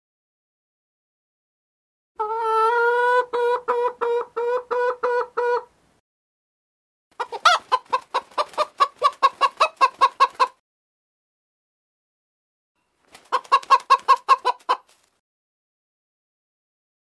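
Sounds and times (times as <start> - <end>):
chicken clucking: 2.2 - 5.7, 7.2 - 10.6, 13.2 - 15.1.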